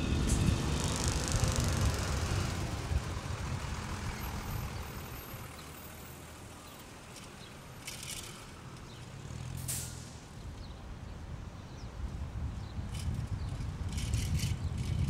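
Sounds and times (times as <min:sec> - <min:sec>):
bus engine rumble: 0:00.0 - 0:11.3
street traffic: 0:00.0 - 0:15.0
short hiss: 0:09.6 - 0:10.3.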